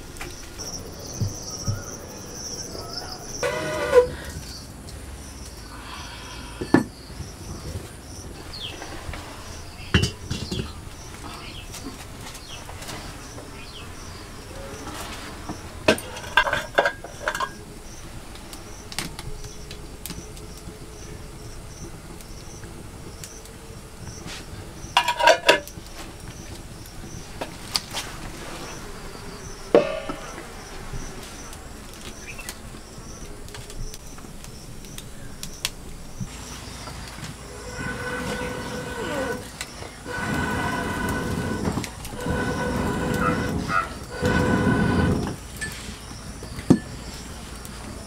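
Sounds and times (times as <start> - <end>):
crickets chirping: 0.0 - 48.0
metal pots clinking: 15.9 - 17.6, 25.0 - 25.7, 29.8 - 30.4.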